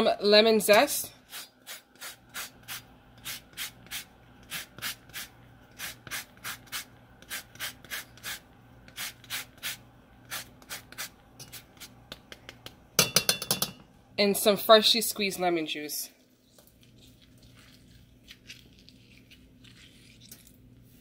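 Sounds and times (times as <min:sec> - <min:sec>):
lemon zested on a grater: 0:16.5 - 0:20.6.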